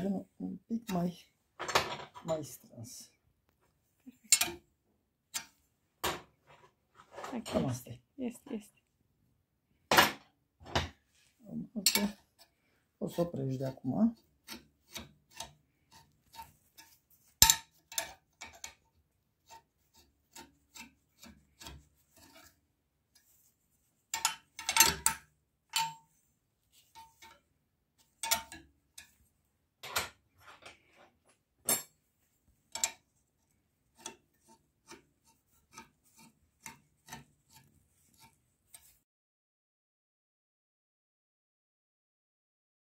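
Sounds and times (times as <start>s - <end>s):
iron bar scraping on steel jig: 14.2s - 18.7s, 19.4s - 22.6s, 33.9s - 39.0s.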